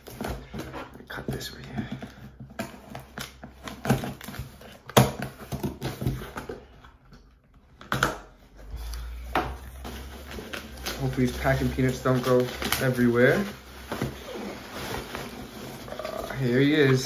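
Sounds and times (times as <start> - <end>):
packing peanuts rustling: 9.7 - 17.0.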